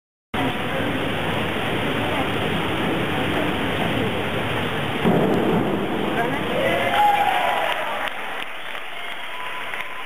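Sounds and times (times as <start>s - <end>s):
indoor pool hiss: 0.4s - 10.0s
springboard thump: 5.0s - 6.5s.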